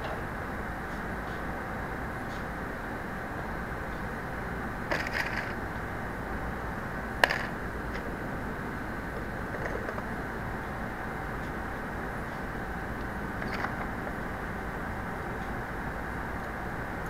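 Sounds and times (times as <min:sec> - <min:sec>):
assembly plant hum: 0:00.0 - 0:17.0
clatter of handling parts: 0:04.9 - 0:05.6.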